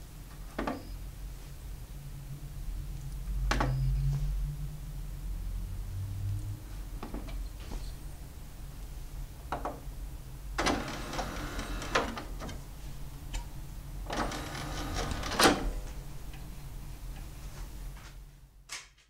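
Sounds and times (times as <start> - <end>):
disc tray whirring and rattling: 10.6 - 12.8, 14.0 - 16.4.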